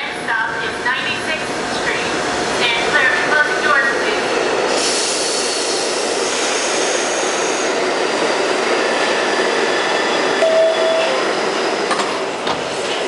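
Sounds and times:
train wheels rumbling on rails: 0.0s - 13.0s
brief steady tone: 10.4s - 11.2s.

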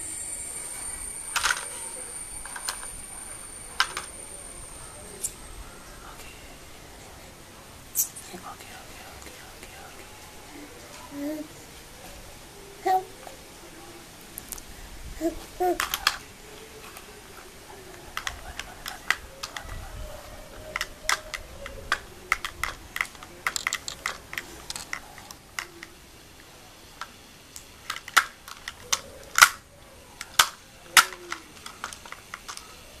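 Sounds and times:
baby vocal sounds: 10.5s - 11.6s, 12.8s - 13.2s, 15.2s - 16.2s.

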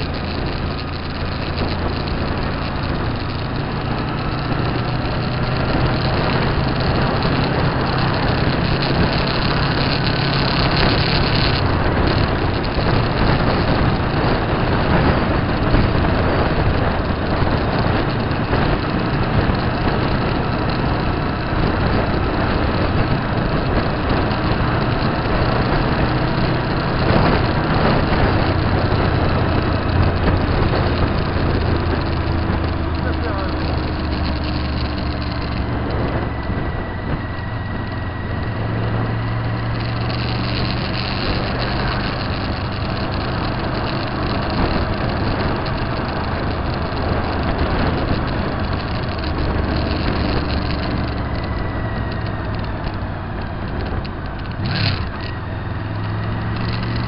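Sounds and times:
motorcycle engine running: 0.0s - 57.0s
wind and road noise: 0.0s - 57.0s.

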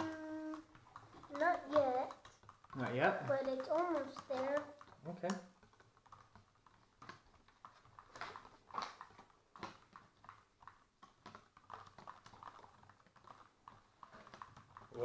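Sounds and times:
spoons scraping plastic cups: 0.0s - 9.2s.

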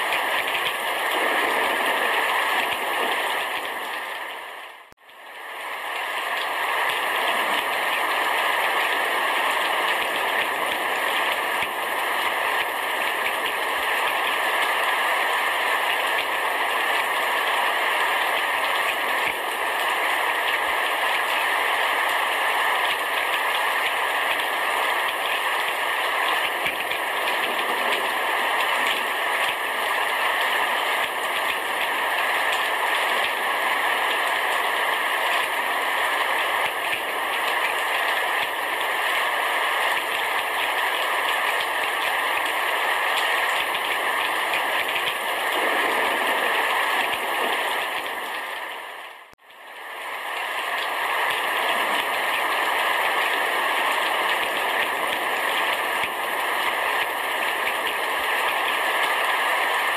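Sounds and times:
heavy rain on a roof: 0.0s - 59.9s.

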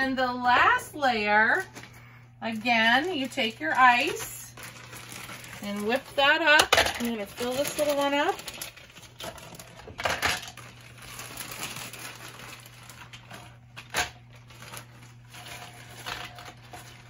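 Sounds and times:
low steady hum: 0.0s - 17.0s
plastic bag crinkling: 0.6s - 17.0s
ice cubes clattering into blender: 4.6s - 17.0s.

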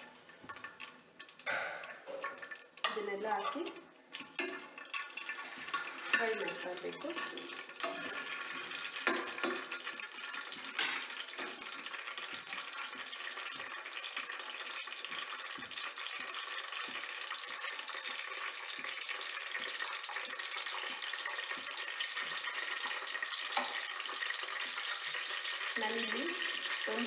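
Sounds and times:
spices sizzling in oil: 0.0s - 27.0s
steel ladle clinking on pot: 1.5s - 8.3s, 9.0s - 9.9s.

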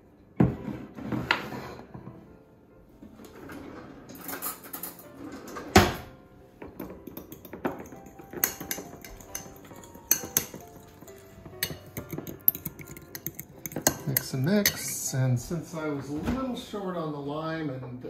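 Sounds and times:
fork clinking against glass bowl: 7.1s - 15.1s.

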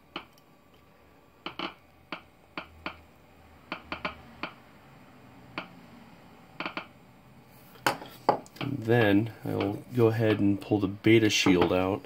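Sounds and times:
geiger counter clicking: 3.7s - 4.6s, 6.6s - 7.0s.

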